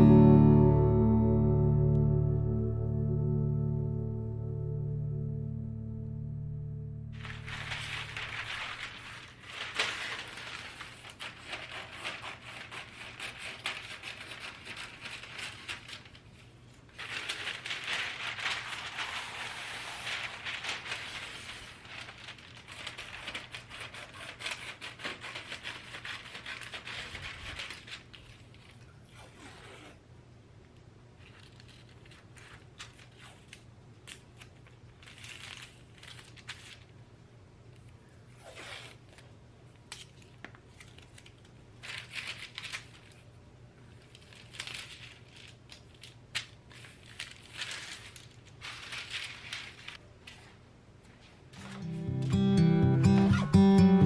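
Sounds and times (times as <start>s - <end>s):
paper crinkling and rustling: 7.2s - 29.0s, 31.2s - 37.0s, 39.9s - 52.1s
scissors cutting paper: 9.7s - 16.1s, 18.6s - 28.2s.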